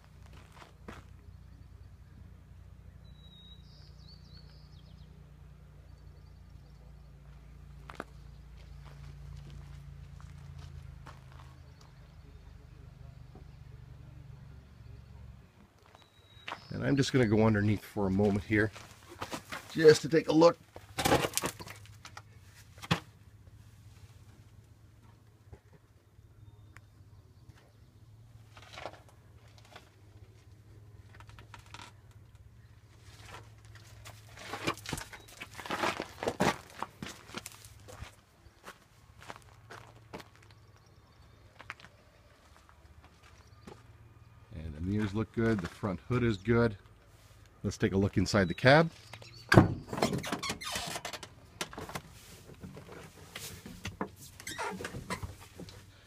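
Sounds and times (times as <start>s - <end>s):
footsteps on gravel: 0.0s - 1.2s, 7.3s - 12.0s, 17.4s - 20.2s, 33.0s - 43.9s, 44.8s - 46.2s
knocks and rustling climbing in: 49.5s - 56.0s.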